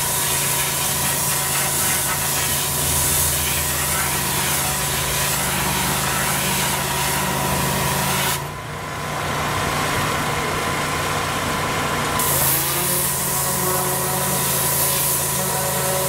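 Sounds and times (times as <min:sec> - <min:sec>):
pressure washer spray hissing: 0:00.0 - 0:08.4, 0:12.2 - 0:16.0
engine droning: 0:02.4 - 0:14.4.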